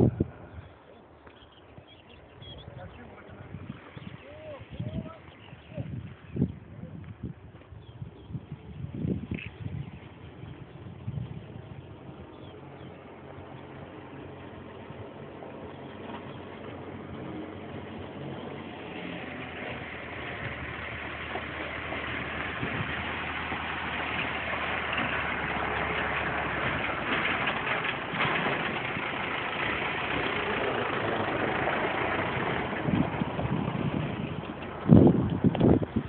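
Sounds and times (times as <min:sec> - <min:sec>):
tractor engine driving by: 0:08.6 - 0:36.0.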